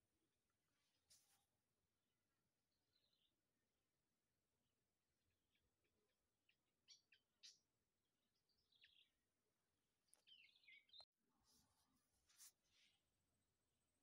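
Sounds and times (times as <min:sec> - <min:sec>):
faint bird chirps: 0:02.7 - 0:03.5, 0:05.3 - 0:14.0.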